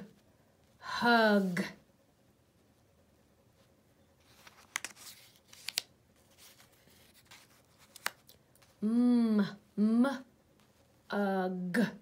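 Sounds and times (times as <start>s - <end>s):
faint paper rustling: 3.5s - 8.8s
light clicks of paper pieces: 4.3s - 8.7s.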